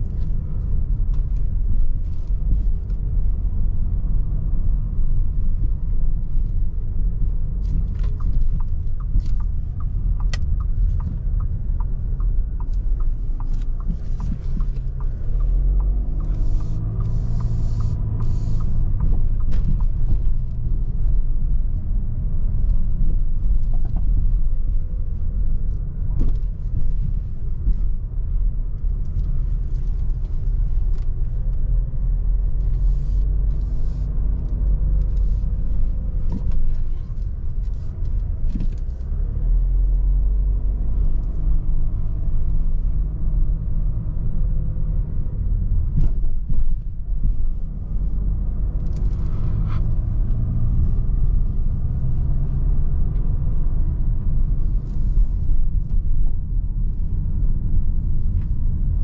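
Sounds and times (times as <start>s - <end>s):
car engine and road rumble: 0.0s - 59.0s.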